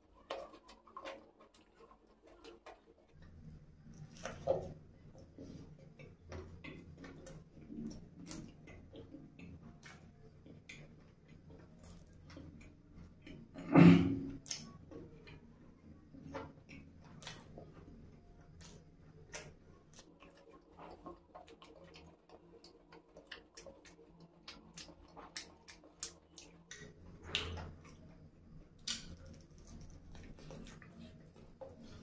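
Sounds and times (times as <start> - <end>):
wet mouth clicks and smacks: 14.3 - 14.8, 21.8 - 28.0, 28.8 - 30.9.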